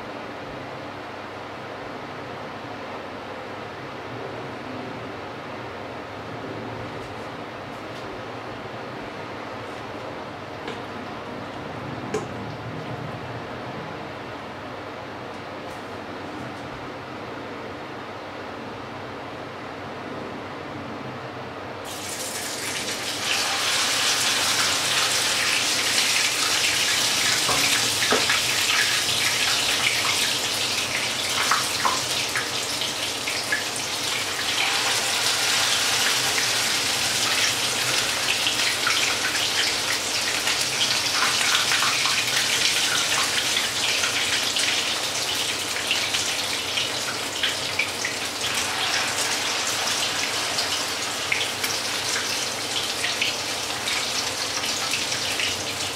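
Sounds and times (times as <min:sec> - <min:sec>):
fat sizzling in a frying pan: 0:21.8 - 0:55.9.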